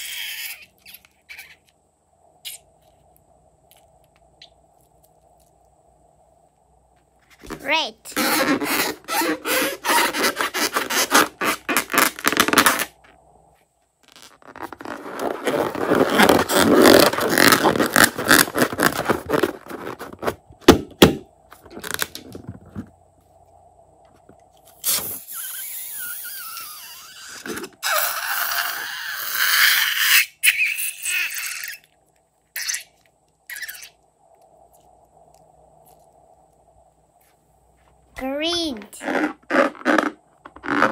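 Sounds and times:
rubber balloon squeaking: 0.0 - 1.7, 7.5 - 13.1, 14.0 - 20.4, 24.8 - 31.9, 32.5 - 34.0, 38.5 - 40.9.

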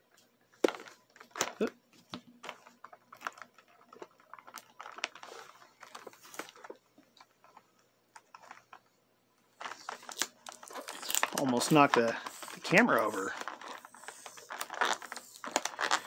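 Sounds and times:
plastic crinkling: 0.1 - 16.0
cardboard and plastic clicking: 0.5 - 8.8, 9.6 - 16.0
scissors cutting blister pack: 9.7 - 16.0.

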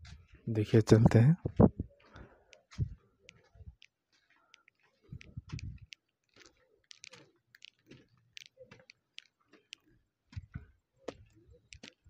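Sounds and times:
footsteps on concrete steps: 0.0 - 0.4, 1.5 - 12.0
dull low thumps: 1.0 - 1.9, 2.7 - 3.0, 5.1 - 5.9.

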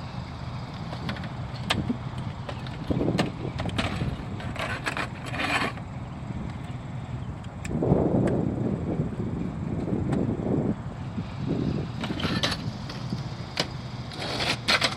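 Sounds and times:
steady low rumble: 0.0 - 14.9
metal clatter and scraping: 0.8 - 5.9, 12.0 - 14.9.

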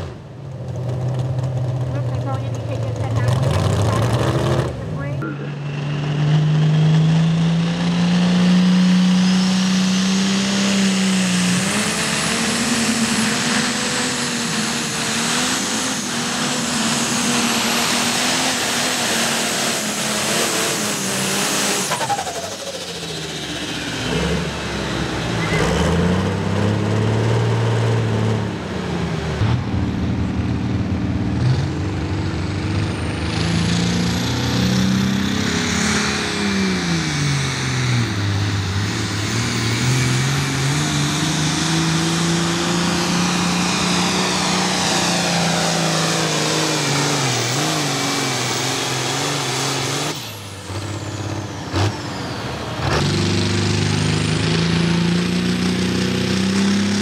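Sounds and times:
tractor diesel engine running hard: 0.0 - 57.0.

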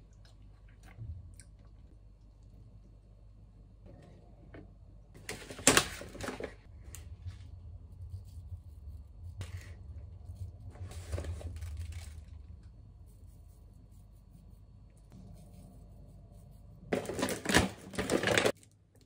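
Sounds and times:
paper pouches rustling: 10.8 - 12.6, 16.9 - 18.6.

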